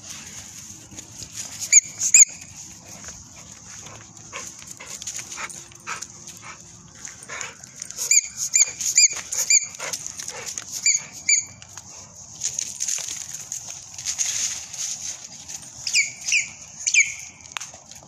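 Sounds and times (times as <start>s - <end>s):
dog whining in high squeaks: 1.6s - 2.4s, 8.0s - 9.8s, 10.8s - 11.6s.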